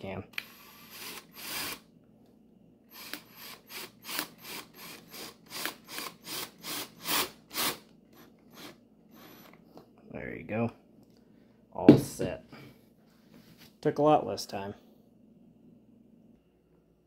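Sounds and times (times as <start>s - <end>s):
cordless drill driving screw: 0.4s - 1.8s, 2.9s - 9.6s.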